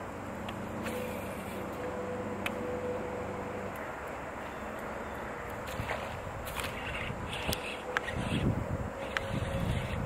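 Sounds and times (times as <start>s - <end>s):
faint steady whine: 0.0s - 10.0s
low motor drone: 0.0s - 10.0s.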